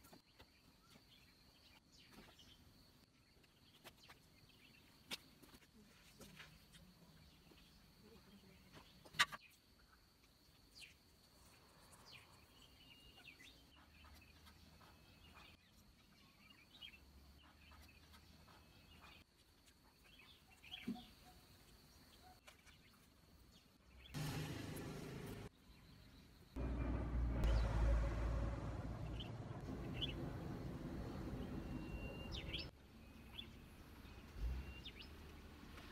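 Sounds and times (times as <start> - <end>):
faint bird chirps: 6.1 - 23.1, 29.0 - 35.3
loud low rumble: 26.6 - 32.7.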